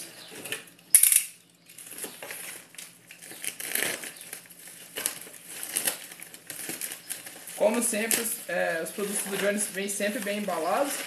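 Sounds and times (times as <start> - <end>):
plastic mailer crinkling and tearing: 1.6 - 11.0.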